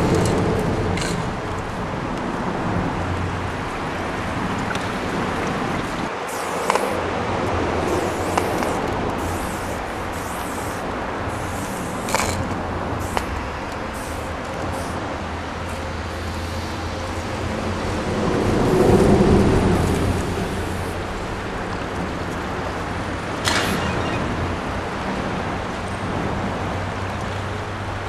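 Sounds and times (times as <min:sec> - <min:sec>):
spray can hissing: 0:06.2 - 0:07.0, 0:07.8 - 0:15.1.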